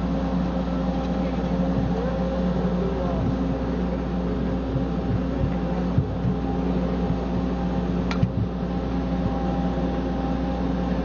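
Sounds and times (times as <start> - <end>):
engine drone inside vehicle: 0.0 - 11.0.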